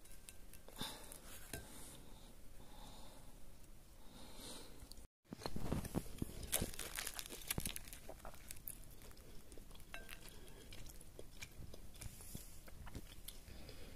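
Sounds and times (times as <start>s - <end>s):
toasted bread crust crackling: 5.9s - 9.2s.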